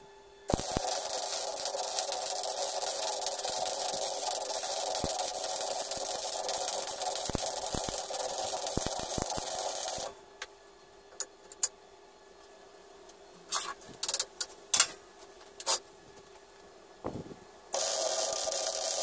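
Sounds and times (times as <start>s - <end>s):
welding arc crackling: 0.5s - 10.1s, 17.7s - 19.0s.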